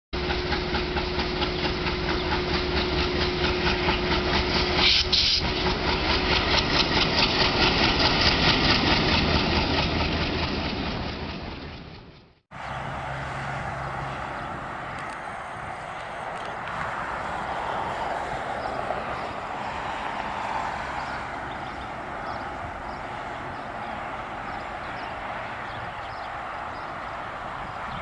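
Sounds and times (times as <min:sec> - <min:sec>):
diesel locomotive humming: 0:00.2 - 0:28.0
train hissing and beating: 0:00.3 - 0:09.4.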